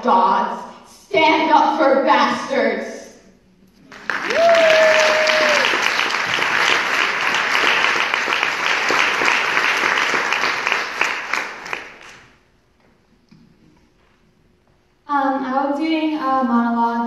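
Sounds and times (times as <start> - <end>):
audience applauding: 3.8 - 12.4
person whooping: 4.1 - 6.0.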